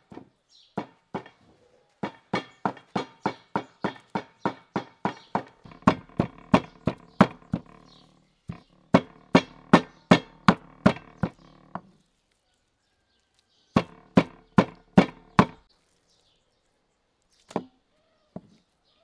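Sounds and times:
cleaver chopping on wooden block: 0.0s - 1.4s, 2.0s - 11.9s, 13.8s - 15.7s.

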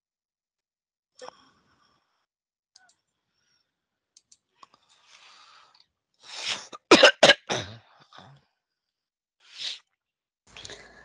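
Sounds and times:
person coughing: 6.7s - 7.8s.

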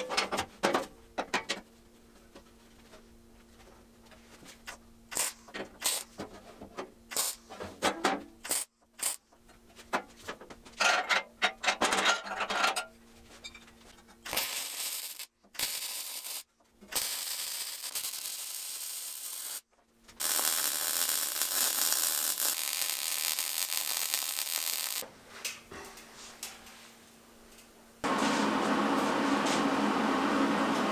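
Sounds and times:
welding clicks and crackling: 5.1s - 6.1s, 7.1s - 7.4s, 8.4s - 9.2s, 14.2s - 25.0s
welding arc sizzle: 5.1s - 6.2s, 7.1s - 7.5s, 8.4s - 9.2s, 14.2s - 25.0s.

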